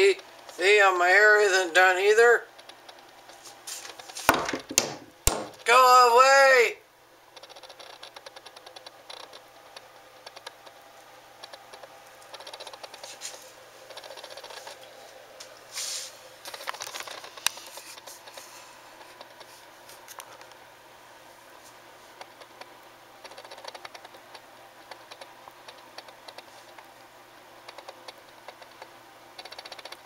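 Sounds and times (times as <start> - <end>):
animal scratching inside wall: 11.4 - 14.8.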